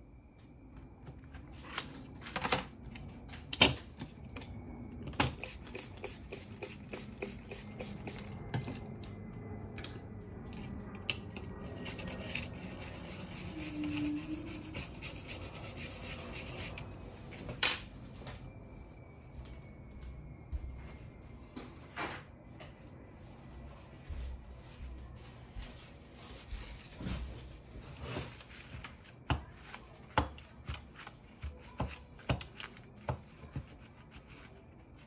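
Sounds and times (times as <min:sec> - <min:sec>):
hand tools clicking and scraping: 0:10.5 - 0:16.8.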